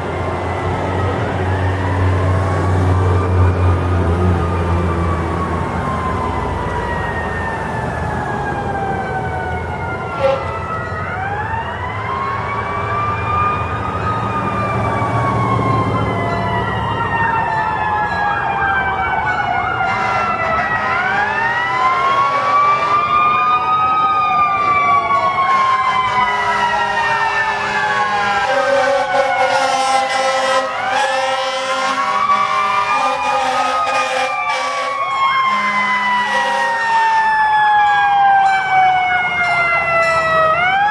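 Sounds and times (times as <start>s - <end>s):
falling siren tones: 0.0s - 40.9s
wailing sirens: 0.0s - 40.9s
horn blasts: 10.1s - 10.6s, 19.8s - 21.2s, 27.6s - 36.9s.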